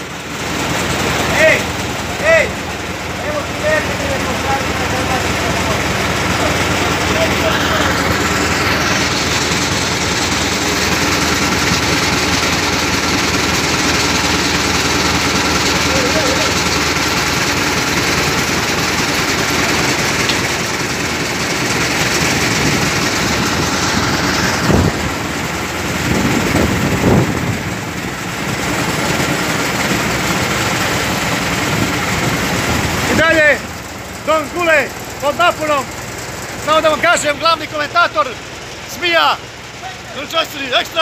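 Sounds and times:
crane engine droning: 0.0s - 41.0s.

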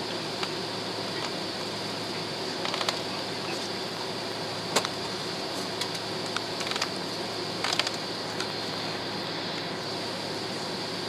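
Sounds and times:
jet airliner cabin noise: 0.0s - 11.0s
steady high whine: 0.0s - 11.0s
short clicks and rattles: 5.8s - 7.0s, 7.6s - 8.5s.

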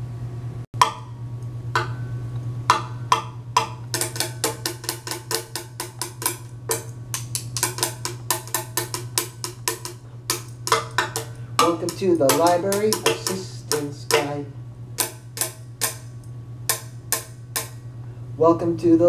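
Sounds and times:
steady low hum: 0.0s - 19.0s
sticks drumming on a tabletop: 2.7s - 16.1s.

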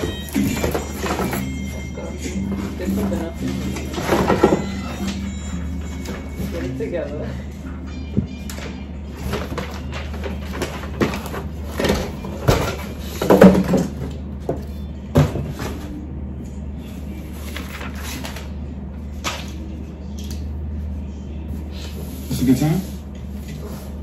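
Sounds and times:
paper and cardboard rustling: 0.0s - 6.8s
panels and boxes knocking: 9.3s - 14.0s.

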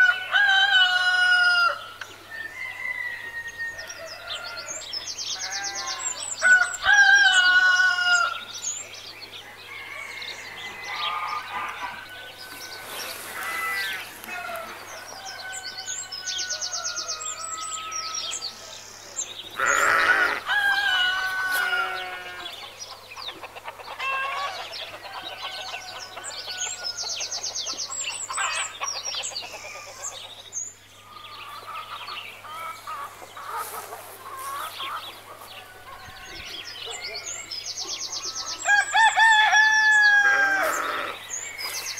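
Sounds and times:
roosters crowing: 0.0s - 8.5s, 9.5s - 18.8s, 19.5s - 29.1s, 31.2s - 37.5s, 38.1s - 41.9s
small birds chirping: 4.3s - 41.9s
hens clucking: 19.6s - 26.4s, 31.5s - 36.1s.

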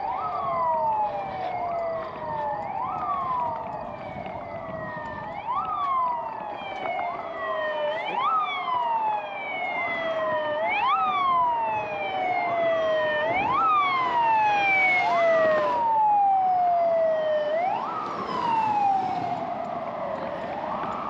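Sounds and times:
second siren wail: 0.0s - 21.0s
siren wailing: 0.0s - 21.0s.

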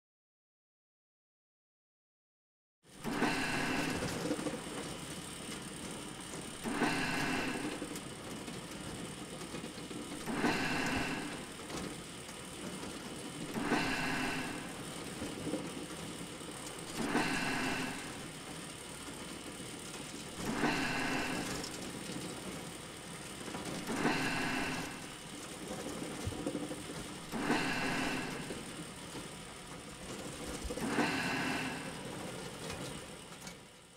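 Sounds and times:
factory machinery running: 3.0s - 33.9s.

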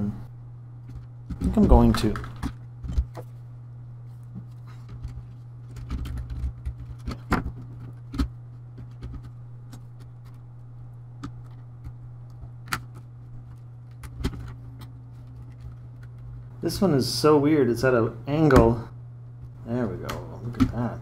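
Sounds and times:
steady low hum: 0.0s - 21.0s.

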